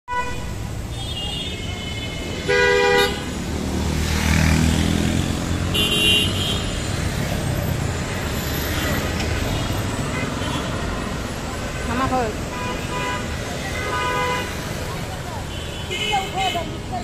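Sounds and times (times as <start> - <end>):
vehicle horn toot: 0.1 - 3.3, 5.7 - 6.8
road traffic din: 0.1 - 17.0
engine passing by: 3.3 - 5.8.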